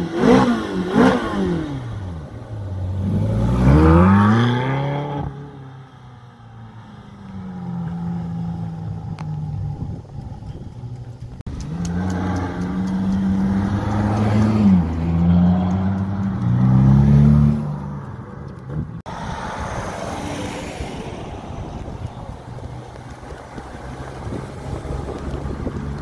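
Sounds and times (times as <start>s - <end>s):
sports car engine accelerating: 0.0s - 5.7s, 7.3s - 18.8s.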